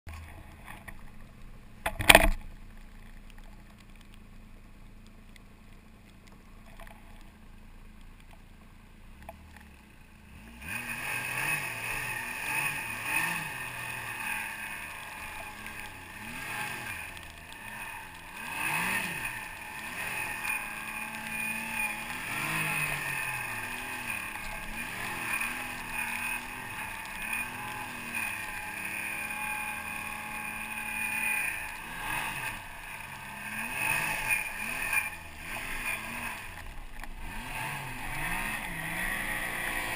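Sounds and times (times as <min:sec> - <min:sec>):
low hum: 0:00.1 - 0:39.9
snowmobile engine revving: 0:10.3 - 0:39.9.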